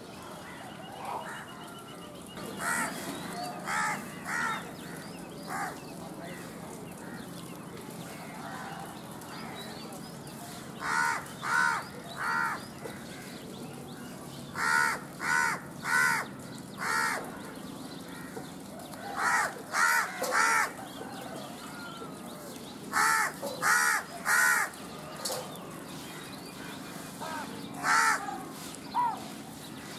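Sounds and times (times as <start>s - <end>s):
faint background noise: 0.0s - 29.9s
crow cawing: 2.6s - 3.0s, 3.7s - 5.8s, 10.8s - 13.1s, 14.6s - 17.3s, 19.2s - 20.8s, 22.9s - 24.8s, 27.2s - 28.3s.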